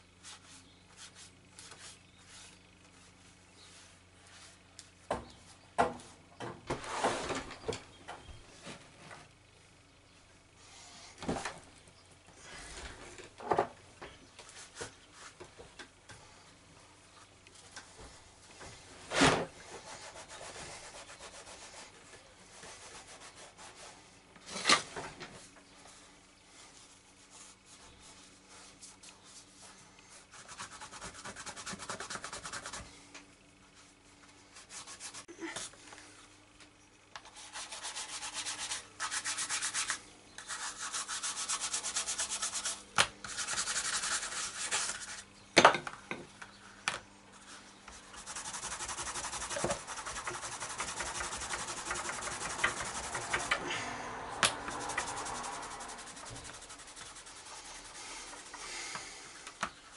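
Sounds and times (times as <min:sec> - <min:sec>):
cloth rubbing on leather: 0:54.7 - 0:58.5.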